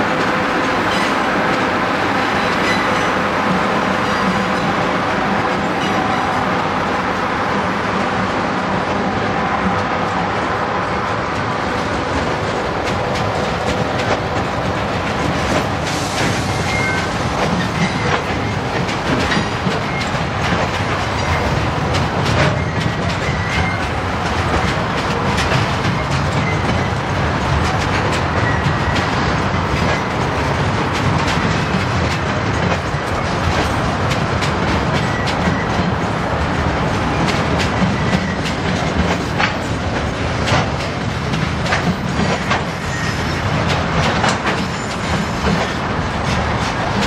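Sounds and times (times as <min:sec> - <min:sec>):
train rumbling with wheels clicking: 0:00.0 - 0:47.0
high wheel squeals: 0:16.2 - 0:17.1, 0:42.8 - 0:43.5.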